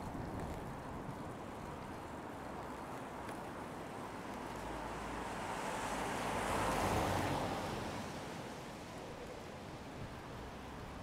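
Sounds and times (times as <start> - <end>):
car passing on wet road: 4.2 - 8.9.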